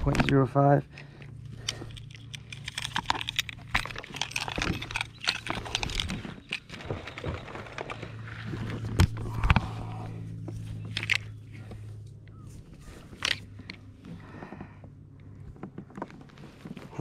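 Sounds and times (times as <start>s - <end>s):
handling clicks knocks and rustles: 0.0s - 9.7s, 10.3s - 17.0s
steady low hum: 0.0s - 17.0s.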